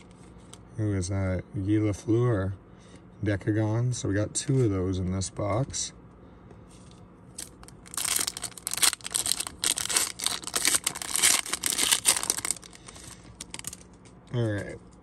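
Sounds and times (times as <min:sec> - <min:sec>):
foil wrapper tearing and crinkling: 0:07.4 - 0:13.9.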